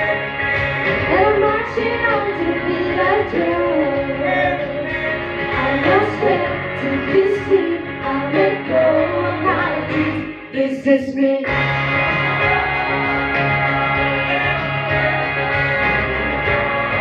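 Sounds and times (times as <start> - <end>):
person singing: 0.0 - 11.7
instrumental accompaniment: 11.5 - 17.0.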